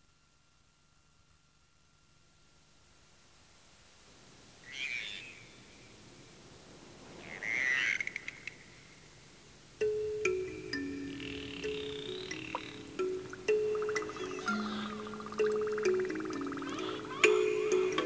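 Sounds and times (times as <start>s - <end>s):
rasping croak-like calls: 4.7s - 5.4s, 7.2s - 8.6s, 10.8s - 18.0s
ringing mallet percussion: 9.8s - 18.0s.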